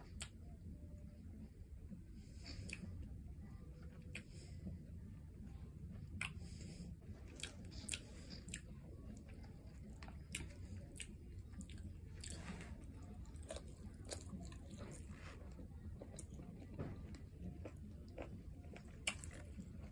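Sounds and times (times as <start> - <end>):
person chewing food: 2.3 - 3.1, 6.0 - 19.9.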